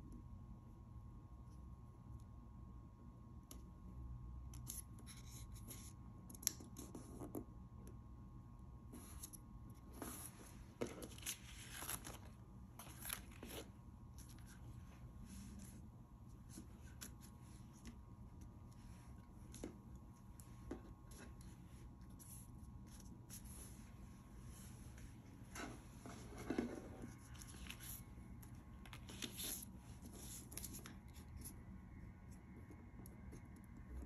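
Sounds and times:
low steady hum: 0.0s - 34.0s
paper rustling and crinkling: 10.0s - 14.6s, 28.8s - 31.5s.

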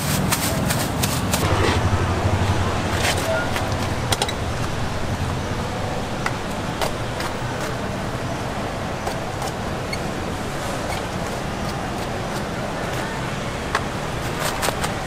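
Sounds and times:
street and market hum: 0.0s - 15.0s
traffic: 0.0s - 15.0s.

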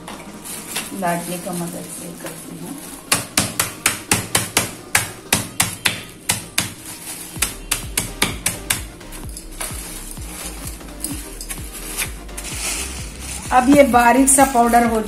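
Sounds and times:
rolling pin pounding biscuits: 3.0s - 15.0s.

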